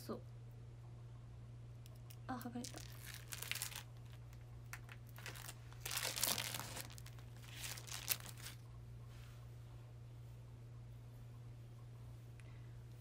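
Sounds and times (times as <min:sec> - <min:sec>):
plastic film crinkling: 0:02.0 - 0:08.6.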